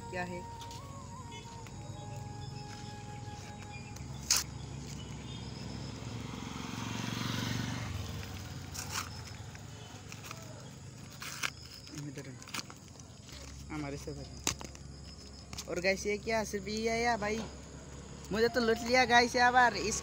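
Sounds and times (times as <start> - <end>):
vehicle passing: 1.1 - 11.6, 16.0 - 20.0.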